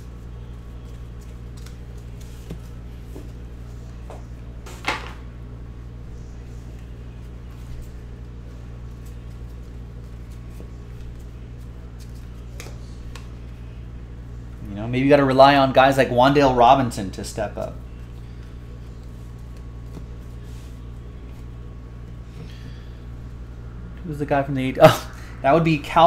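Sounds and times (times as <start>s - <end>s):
steady low hum: 0.0s - 26.0s
trading cards clicking and brushing: 8.8s - 13.7s.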